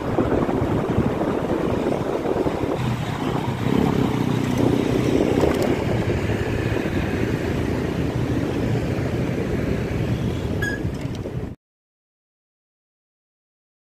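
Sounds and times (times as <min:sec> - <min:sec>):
motorbikes passing: 0:00.0 - 0:11.6
short high tone: 0:10.6 - 0:10.9.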